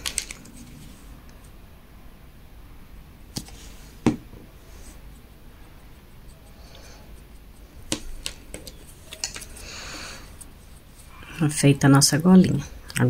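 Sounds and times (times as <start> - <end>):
clicks and knocks of handled tools: 8.2 - 9.6.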